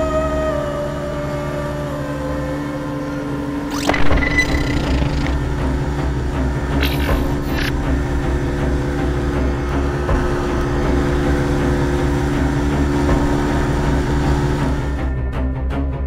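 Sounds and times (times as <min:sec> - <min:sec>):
boat engine running: 0:00.0 - 0:15.4
rush of boat wash: 0:05.8 - 0:15.0.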